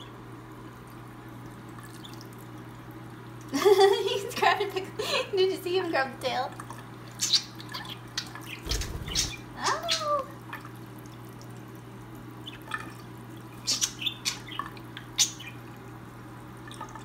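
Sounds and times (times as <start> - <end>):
birds splashing: 6.7 - 10.1
budgerigars chirping: 7.2 - 10.0.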